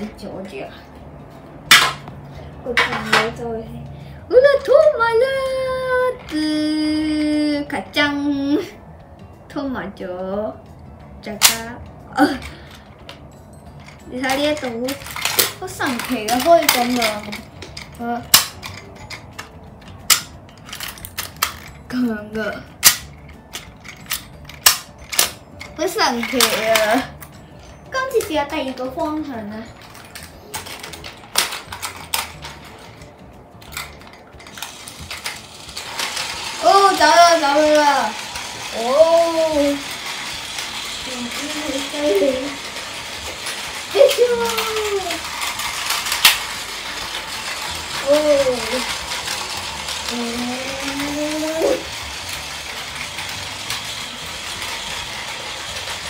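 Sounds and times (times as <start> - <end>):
plastic toy train cars clicking: 13.8 - 21.8, 22.8 - 27.0, 29.8 - 56.0.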